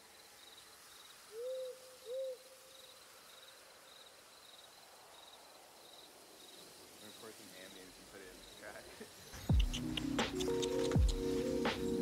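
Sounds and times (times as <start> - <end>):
owl hooting: 1.3 - 2.6, 9.3 - 12.0
faint high chirping: 8.4 - 12.0.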